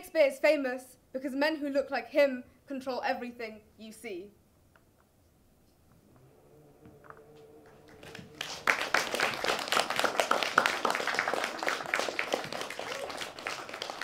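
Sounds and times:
audience applauding: 0:07.0 - 0:14.0.

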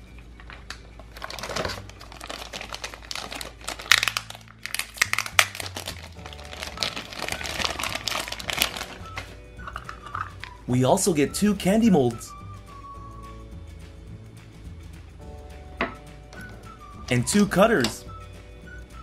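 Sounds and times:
plastic bag crinkling: 0:00.4 - 0:10.6.

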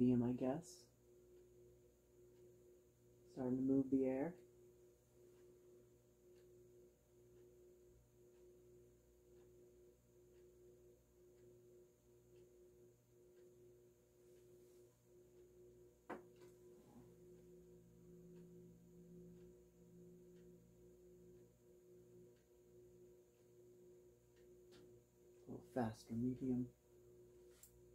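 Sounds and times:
ceiling fan motor hum: 0:00.0 - 0:27.9
lower hum: 0:00.0 - 0:27.9
click: 0:27.5 - 0:27.8.

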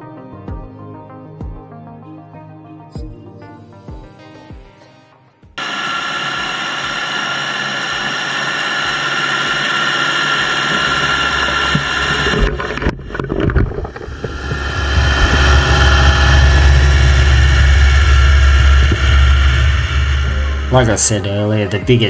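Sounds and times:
crawler dozer engine whining: 0:13.9 - 0:21.9.

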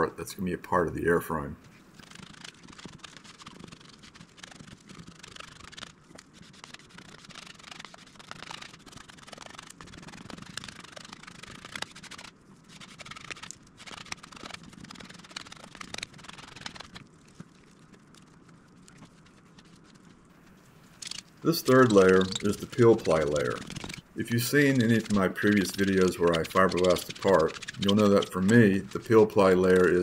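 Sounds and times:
squeegee scraping cloth: 0:19.0 - 0:30.0.

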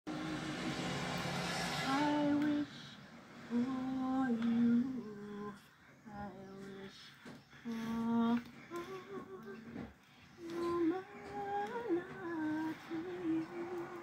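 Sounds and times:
woman singing unaccompanied: 0:01.8 - 0:14.0.

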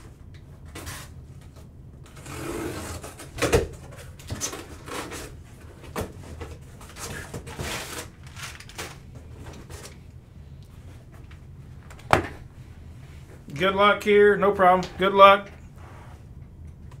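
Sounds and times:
cardboard and wrapper rustling: 0:02.7 - 0:10.0.

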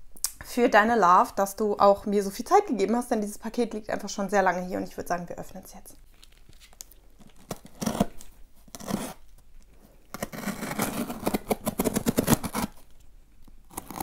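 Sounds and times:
hands rustling cardboard: 0:06.1 - 0:13.0
box cutter slitting cardboard: 0:07.4 - 0:09.2, 0:10.1 - 0:12.8, 0:13.7 - 0:14.0.

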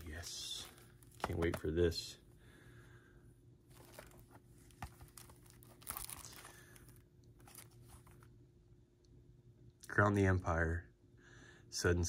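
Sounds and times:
plastic wrap crinkling: 0:00.0 - 0:01.7, 0:03.7 - 0:08.3
plastic cases clicking: 0:01.1 - 0:01.7.

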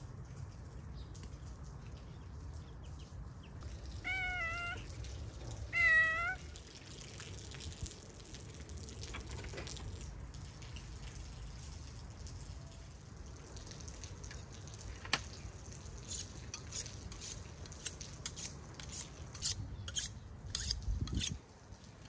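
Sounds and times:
cat meowing: 0:04.0 - 0:04.9, 0:05.7 - 0:06.5.

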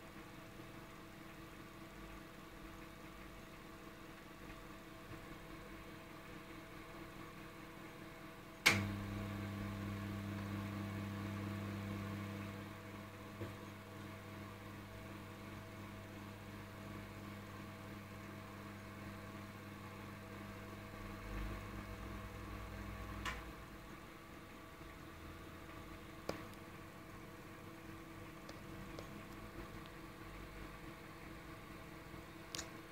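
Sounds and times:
microwave oven humming: 0:00.0 - 0:32.9
microwave switch click: 0:08.7 - 0:08.9.

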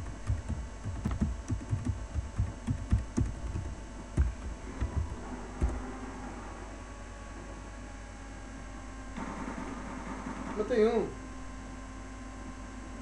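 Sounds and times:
keyboard typing thumps: 0:00.0 - 0:05.8
steady electrical hum: 0:00.0 - 0:13.0.

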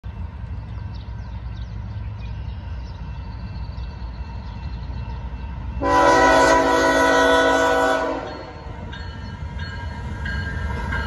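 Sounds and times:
diesel locomotive rumble: 0:00.0 - 0:11.0
train air horn chord: 0:05.8 - 0:08.6.

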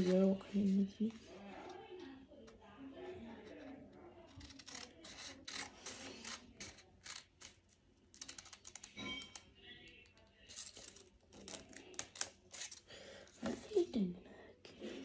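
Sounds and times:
scissors cutting paper: 0:00.0 - 0:02.6, 0:03.4 - 0:09.5, 0:10.2 - 0:12.9.

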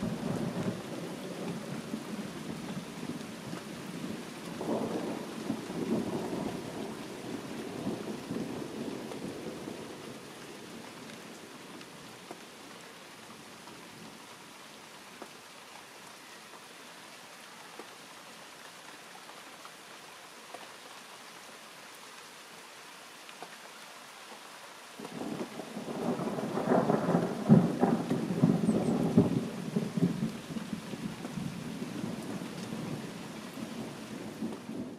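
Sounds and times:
thunder rumbling: 0:00.0 - 0:10.2, 0:25.1 - 0:34.9
steady rain: 0:00.0 - 0:34.9.

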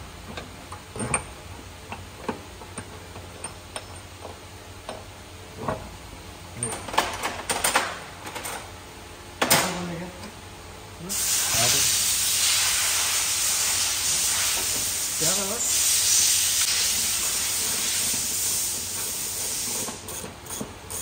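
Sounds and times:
loud steady hiss: 0:11.0 - 0:20.1.

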